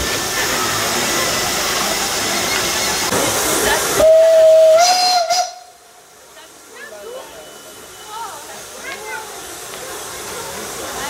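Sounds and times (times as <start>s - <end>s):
steam hissing: 0.0s - 11.0s
steam whistle blast: 4.0s - 5.9s.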